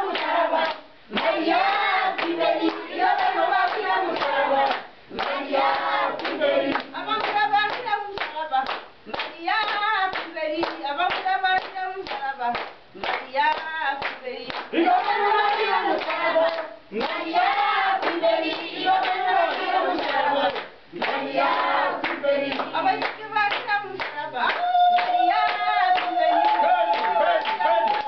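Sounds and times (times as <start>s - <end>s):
congregation singing: 0.0s - 8.1s, 14.2s - 28.0s
rhythmic hand-clapping: 0.0s - 28.0s.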